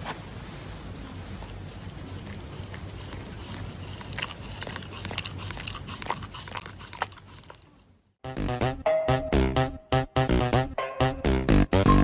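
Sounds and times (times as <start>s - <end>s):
dog chewing mask: 1.3s - 7.9s.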